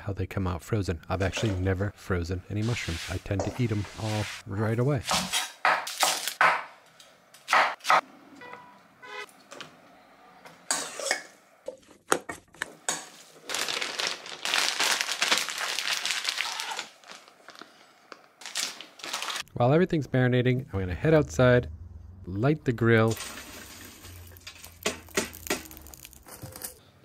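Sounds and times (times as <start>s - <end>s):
plastic bag crinkling: 13.4s - 19.5s, 23.5s - 26.8s.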